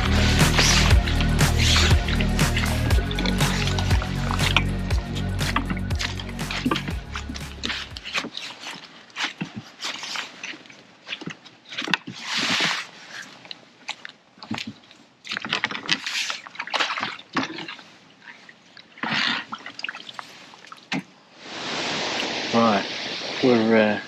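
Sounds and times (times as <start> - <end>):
fishing tackle clicking and knocking: 0.0 - 8.3
water sloshing and splashing: 0.0 - 24.0.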